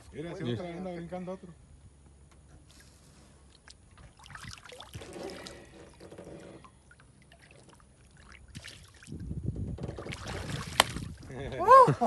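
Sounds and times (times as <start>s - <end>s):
water splashing and sloshing: 2.6s - 12.0s.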